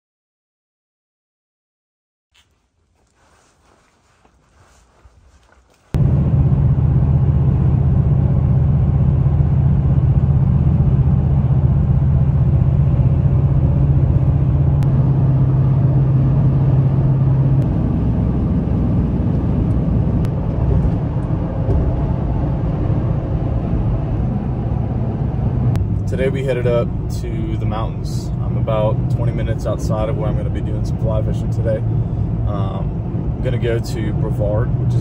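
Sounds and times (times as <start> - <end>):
engine and road noise drone: 2.8 - 35.0.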